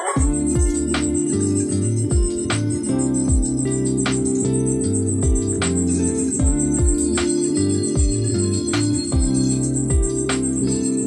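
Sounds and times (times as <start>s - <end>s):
deep kick drums: 0.2s - 1.1s, 2.1s - 2.7s, 3.3s - 3.8s, 5.1s - 5.8s, 6.4s - 7.2s, 8.0s - 8.4s, 9.1s - 10.3s
held bass notes: 0.2s - 10.9s.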